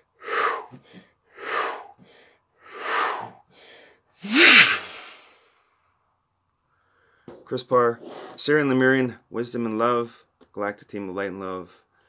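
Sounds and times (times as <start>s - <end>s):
man breathing forcefully: 0.0s - 5.5s.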